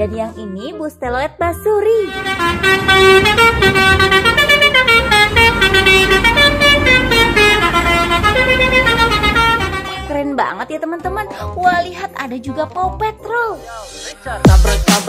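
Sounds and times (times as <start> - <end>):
multi-tone bus horn playing tune: 1.8 - 10.3
bus engine running: 2.0 - 10.1.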